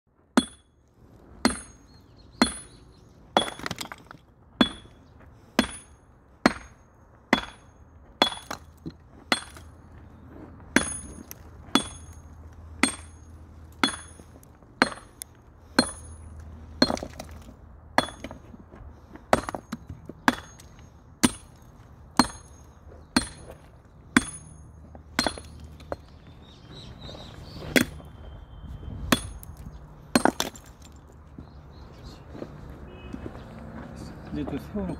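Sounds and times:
hammer striking steel chisel: 5.6 - 9.7, 10.8 - 17.2, 22.2 - 23.6, 24.2 - 26.0.

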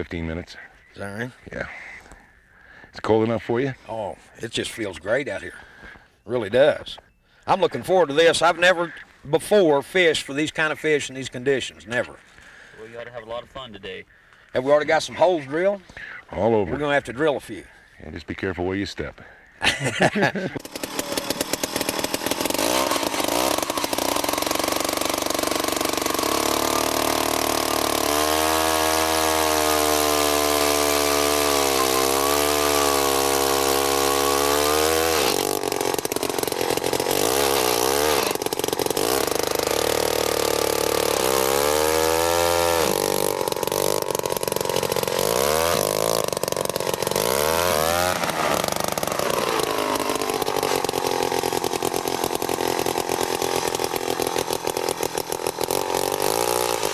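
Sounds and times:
ice auger engine running: 20.3 - 56.9.

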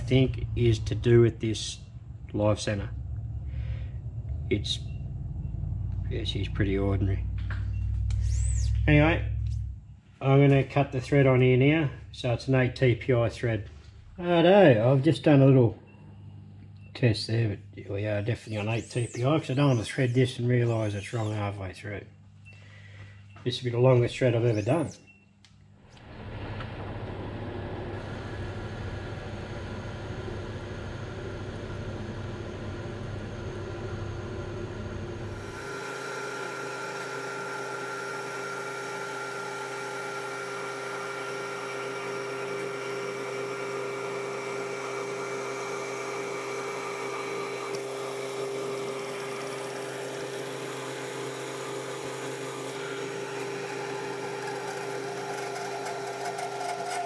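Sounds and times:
metal lathe running: 26.4 - 57.0.

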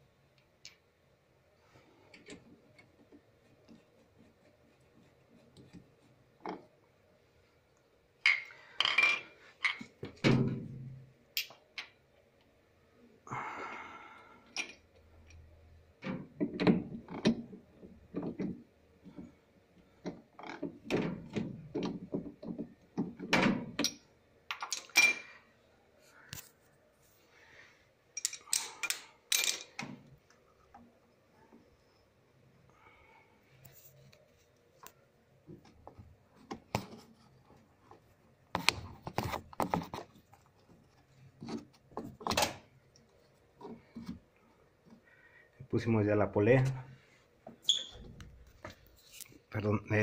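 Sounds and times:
knocks and clunks of parts handled: 8.2 - 12.0, 16.0 - 25.3, 28.2 - 30.9.

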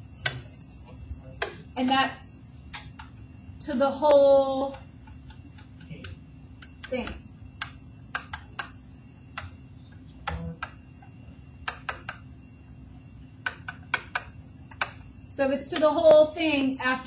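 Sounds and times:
faint steady hum: 0.0 - 17.0
stylus tapping writing surface: 4.0 - 12.3, 13.4 - 15.1.

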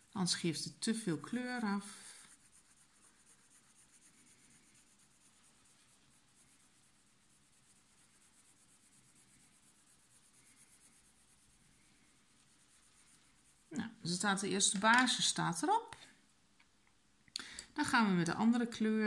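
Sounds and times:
pencil scratching on paper: 1.1 - 14.7.

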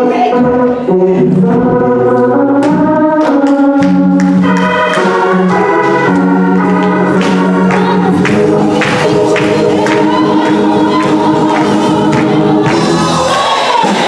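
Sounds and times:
organ playing sustained chords: 0.3 - 13.3.

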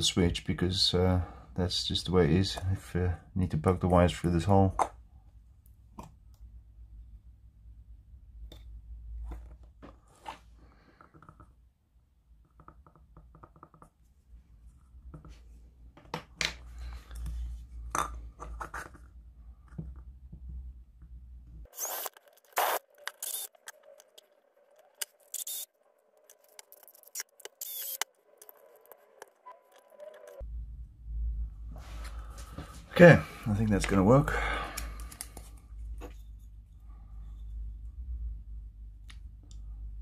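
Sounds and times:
low hum: 27.7 - 40.0.

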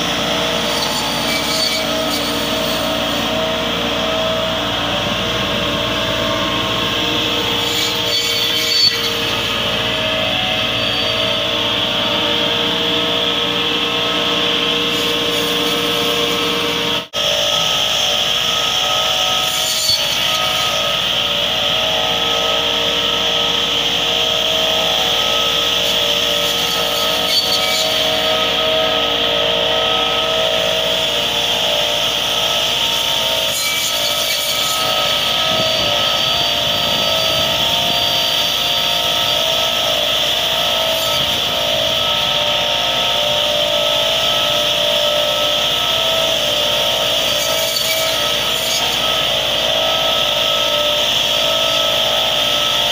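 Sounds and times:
blades rasping through branches: 0.0 - 17.3
saw discs high whine: 0.0 - 52.9
tractor diesel engine running: 2.0 - 7.6.

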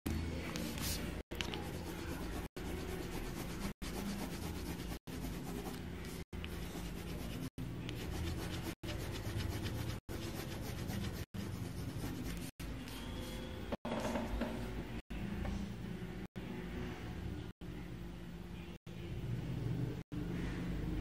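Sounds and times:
pencil scratching on paper: 0.6 - 12.5.

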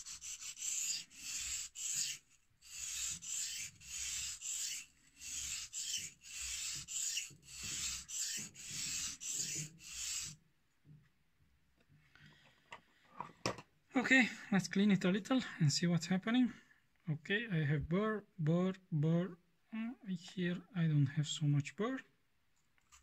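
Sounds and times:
knife scraping on whetstone: 0.0 - 10.4.

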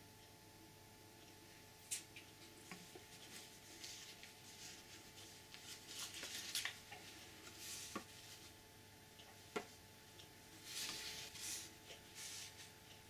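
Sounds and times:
paper and card rustling: 2.7 - 8.5, 10.6 - 12.7.

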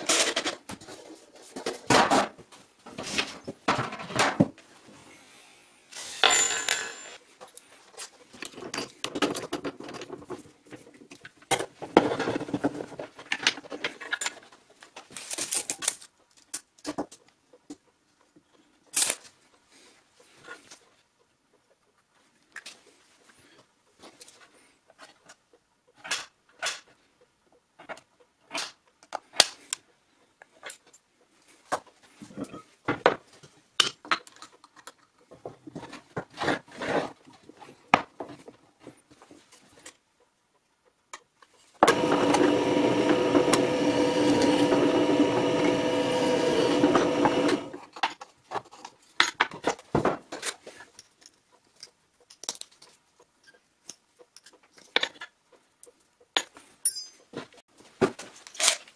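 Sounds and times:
drill press running: 41.8 - 47.8
metal clicks and clinks: 56.4 - 57.3.

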